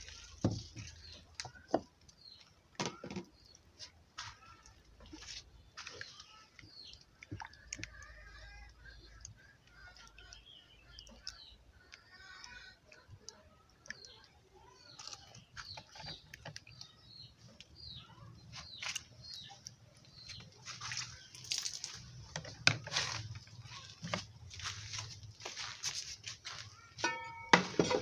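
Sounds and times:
hands squelching batter: 3.3 - 25.4.

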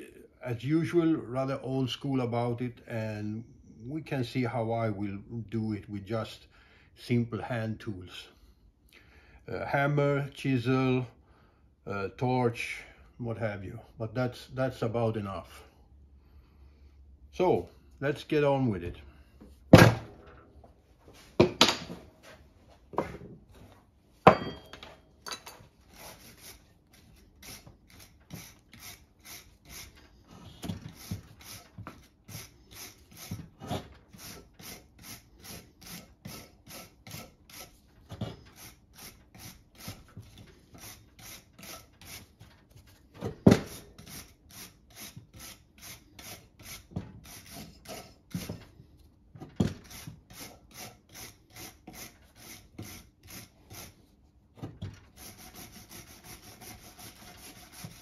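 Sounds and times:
hand file rasping on metal: 25.9 - 42.4, 43.6 - 48.8, 49.7 - 54.1, 55.1 - 58.0.

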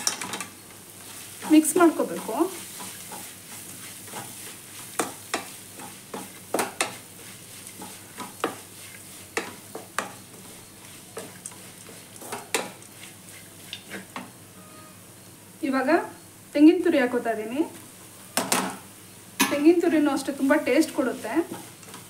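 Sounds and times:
food sizzling: 0.0 - 22.0
spatula scraping a pan: 1.0 - 15.0, 20.8 - 22.0.

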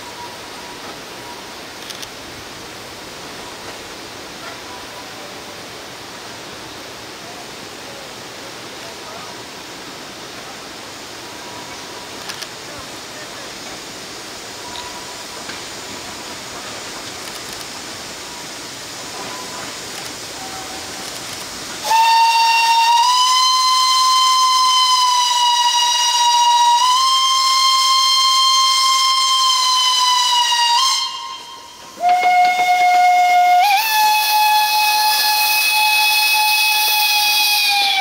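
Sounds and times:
steam hissing: 0.0 - 38.0
steam locomotive whistle blast: 21.8 - 38.0.

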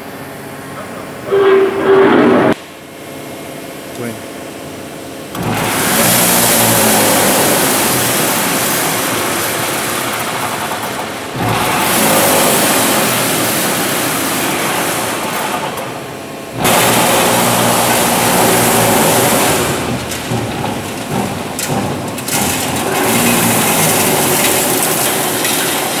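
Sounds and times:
machine running with mechanical rush: 5.3 - 26.0.

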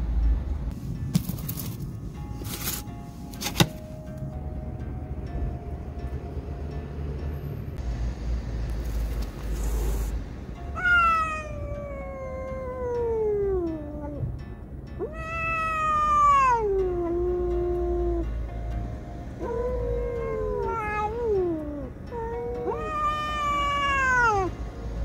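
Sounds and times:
cat yowling: 10.7 - 14.2, 15.0 - 18.3, 19.4 - 24.6.

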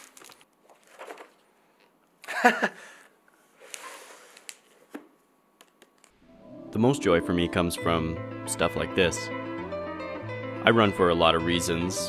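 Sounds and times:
book pages rustling: 0.0 - 1.6, 3.4 - 6.2.

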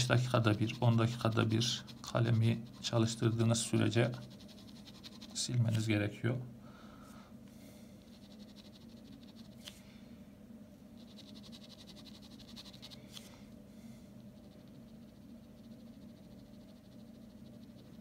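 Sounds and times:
pen scratching on paper: 0.0 - 5.9, 8.1 - 9.7, 11.0 - 13.3, 14.4 - 18.0
low steady hum: 0.0 - 18.0.

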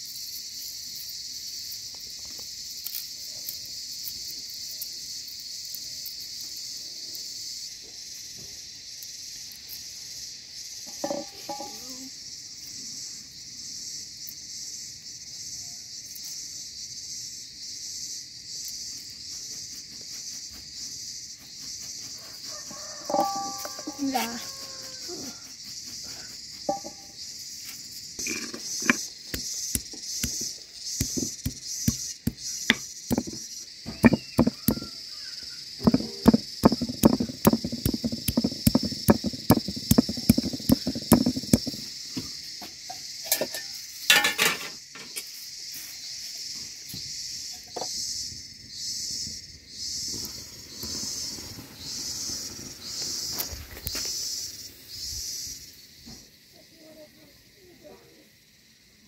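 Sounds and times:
insects chirring: 0.0 - 59.0
stone pounding garlic: 10.9 - 11.8, 23.0 - 24.0, 25.4 - 27.1, 28.2 - 34.9, 35.8 - 41.8.

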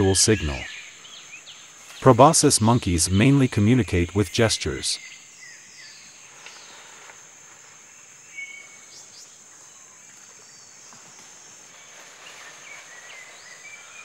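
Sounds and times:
short insect chirps: 4.7 - 14.0.

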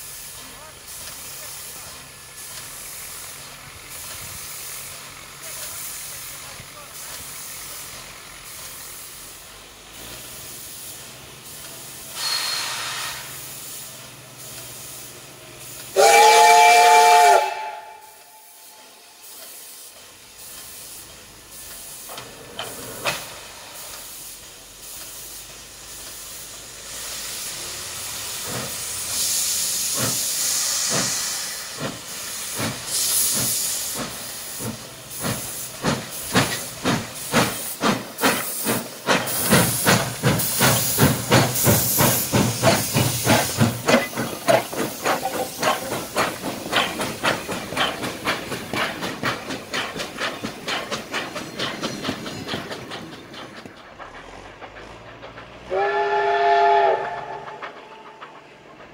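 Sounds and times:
steam hissing: 0.0 - 58.9
steam locomotive exhaust chuffs: 0.0 - 58.9
steam whistle blast: 12.2 - 13.3, 15.9 - 19.0, 55.7 - 58.2.

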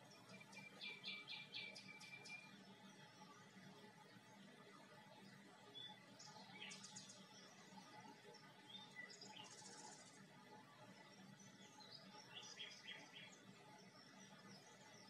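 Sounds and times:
faint background noise: 0.0 - 15.0.

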